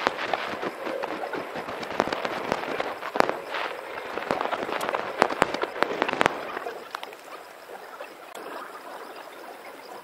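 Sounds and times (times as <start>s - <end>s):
firework bangs: 0.0s - 7.2s
firework crackle: 0.0s - 7.4s.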